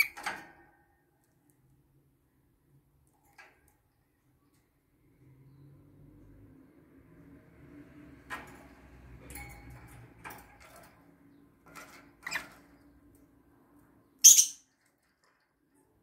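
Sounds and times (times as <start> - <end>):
bird clicks and rustles in cage: 0.0 - 1.8, 2.8 - 4.8, 8.0 - 14.0, 14.7 - 16.0
sharp high-pitched bird call: 14.2 - 14.7.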